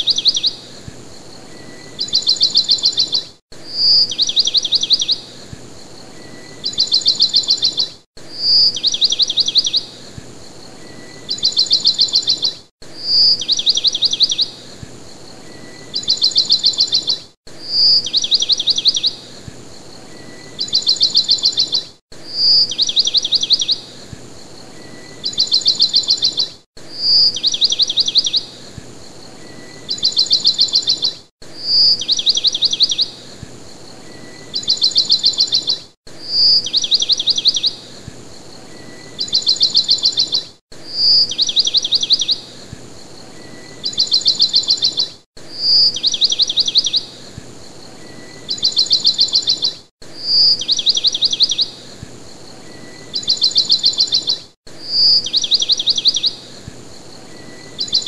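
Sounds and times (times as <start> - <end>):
bird song with trills: 0.0 - 58.0
faint steady noise: 51.2 - 58.0.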